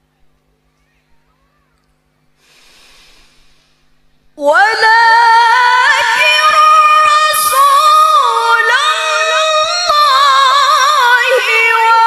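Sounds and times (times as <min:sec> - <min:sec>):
faint hiss: 0:02.3 - 0:04.1
woman reciting melodically: 0:04.4 - 0:12.0.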